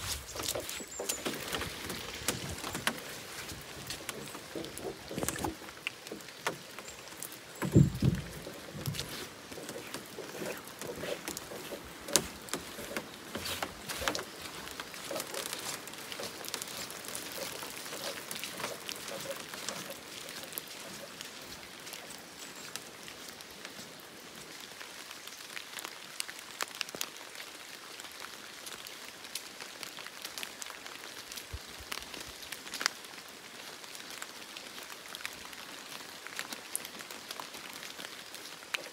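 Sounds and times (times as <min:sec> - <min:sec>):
steady rain in forest: 0:00.0 - 0:38.9
loud thump: 0:07.6 - 0:08.3.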